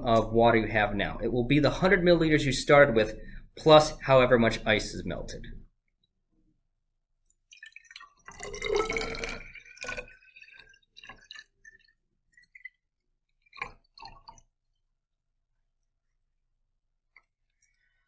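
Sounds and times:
water drips falling: 0:07.2 - 0:14.9.

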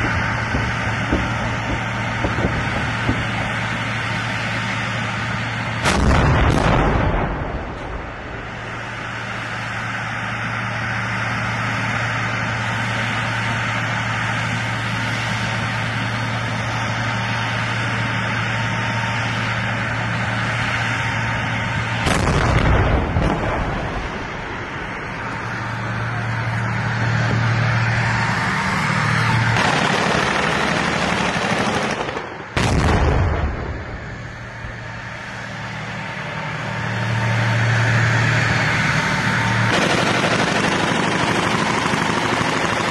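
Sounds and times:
loud blasts: 0:00.0 - 0:10.1, 0:18.8 - 0:42.9
tank engine drone: 0:00.0 - 0:42.9.

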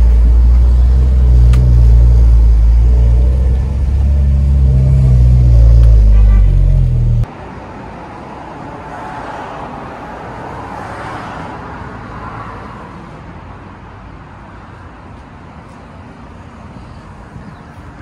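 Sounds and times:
car engine drone through exhaust: 0:00.0 - 0:07.3
outdoor street noise: 0:00.0 - 0:18.0.

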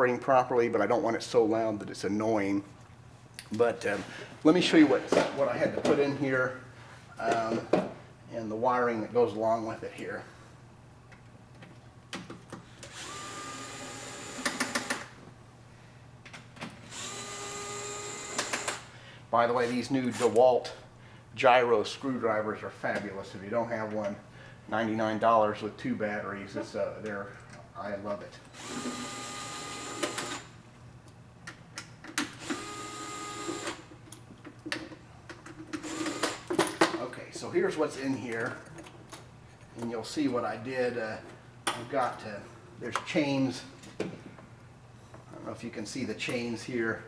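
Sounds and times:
cordless screwdriver motor whine: 0:12.9 - 0:14.8, 0:16.9 - 0:18.9, 0:28.6 - 0:30.5.

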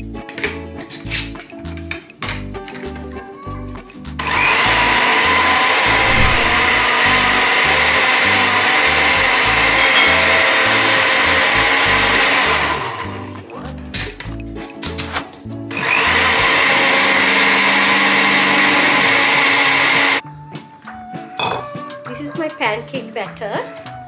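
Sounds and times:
background music with steady beat: 0:00.0 - 0:06.4, 0:07.4 - 0:16.6, 0:20.2 - 0:24.0
blender running at high speed: 0:04.2 - 0:13.3, 0:15.7 - 0:20.2.

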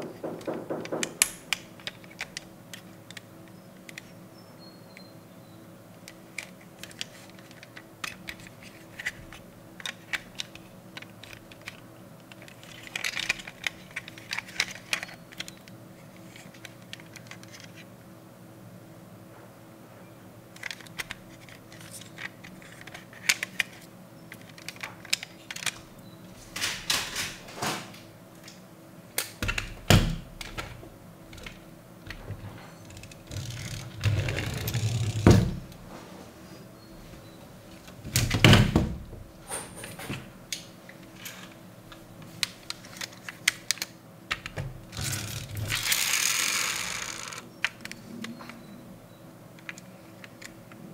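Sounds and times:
toy car doors clicking: 0:45.0 - 0:47.4.

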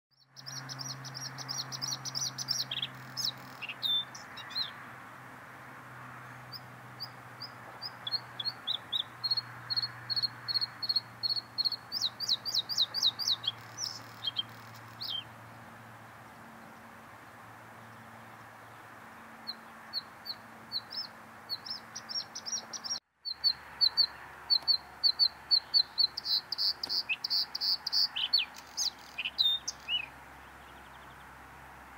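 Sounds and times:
bird singing trills: 0:00.1 - 0:04.8, 0:06.5 - 0:15.3, 0:19.4 - 0:31.2.

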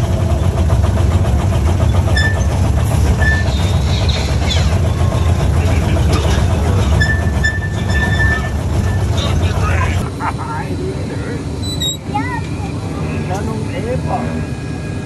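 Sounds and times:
ride train rumbling on track: 0:00.0 - 0:15.0
short high squeaks: 0:02.1 - 0:02.6, 0:03.2 - 0:04.8, 0:06.8 - 0:09.2, 0:11.6 - 0:12.1.

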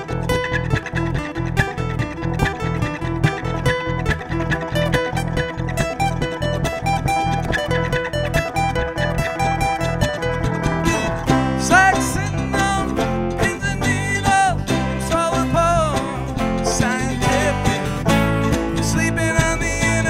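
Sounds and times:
electric bass: 0:00.0 - 0:20.0
picked guitar melody: 0:00.0 - 0:20.0
strummed acoustic guitar: 0:00.0 - 0:20.0
man singing: 0:10.6 - 0:20.0.

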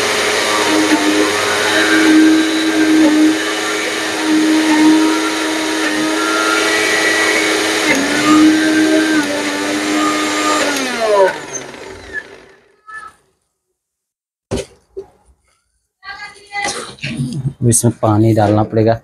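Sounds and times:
mixer grinder running: 0:00.0 - 0:13.1.

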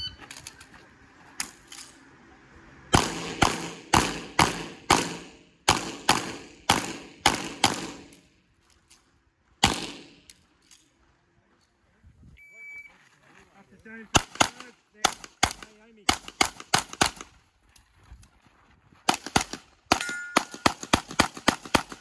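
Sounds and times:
pistol shots: 0:02.9 - 0:08.2, 0:09.6 - 0:10.3, 0:14.1 - 0:17.3, 0:19.1 - 0:22.0.

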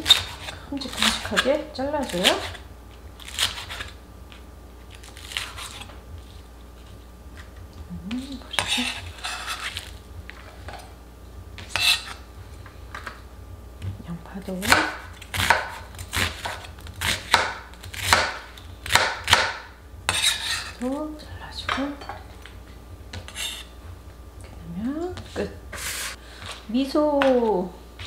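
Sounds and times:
knife cutting on cutting board: 0:05.1 - 0:05.9, 0:08.5 - 0:09.9, 0:11.6 - 0:12.2, 0:14.6 - 0:19.5, 0:20.1 - 0:20.8, 0:23.2 - 0:23.7.

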